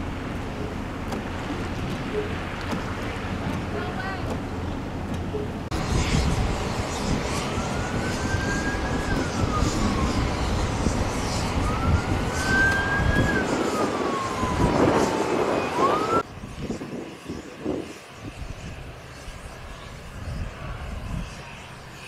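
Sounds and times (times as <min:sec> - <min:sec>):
steady rushing noise: 0:00.0 - 0:22.0
siren wailing: 0:07.0 - 0:16.2.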